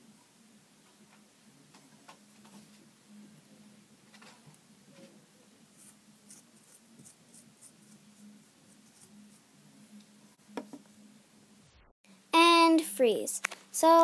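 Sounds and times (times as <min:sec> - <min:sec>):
low steady hum: 0:00.0 - 0:13.2
paintbrush dabbing strokes: 0:05.7 - 0:10.0.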